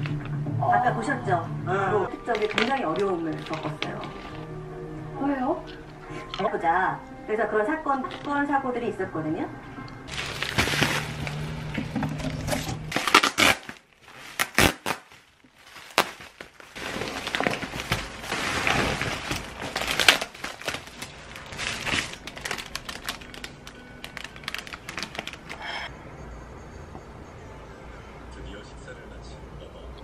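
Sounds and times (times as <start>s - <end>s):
bubble wrap crackling: 0.0s - 0.3s, 2.1s - 4.6s, 10.1s - 25.9s
foil bag crinkling: 2.1s - 4.5s, 10.1s - 25.9s.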